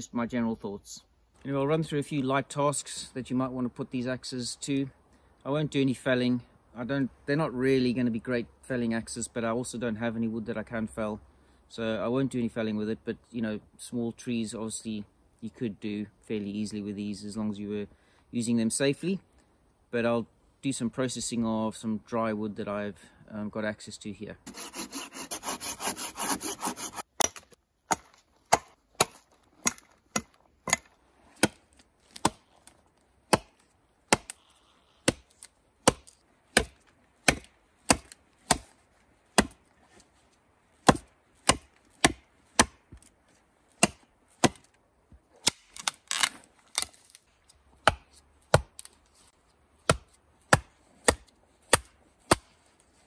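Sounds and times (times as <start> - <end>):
blade rasping against wood: 24.5 - 27.2
axe chopping wood: 27.2 - 34.4, 35.0 - 38.7, 39.3 - 39.6, 40.8 - 43.0, 43.8 - 44.7, 45.4 - 45.8, 47.8 - 48.9, 49.8 - 52.5.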